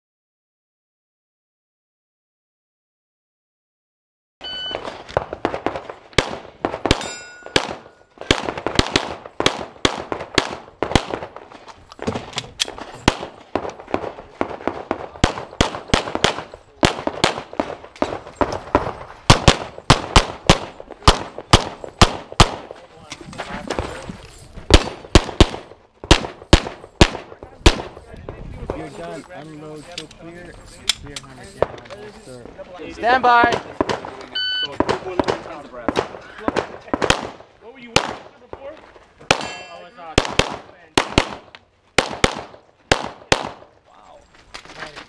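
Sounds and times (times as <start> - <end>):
shot timer start beep: 4.4 - 4.8, 34.4 - 34.7
pistol firing rapid shots: 5.2 - 11.4, 13.0 - 22.7, 24.7 - 28.0, 34.8 - 38.3, 39.3 - 39.5, 40.2 - 43.7
steel targets clanging: 7.0 - 8.1, 39.4 - 40.2.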